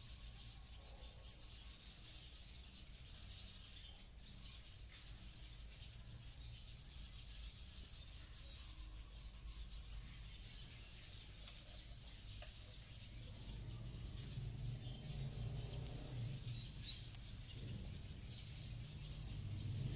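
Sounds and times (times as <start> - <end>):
small birds chirping: 0.0 - 19.9.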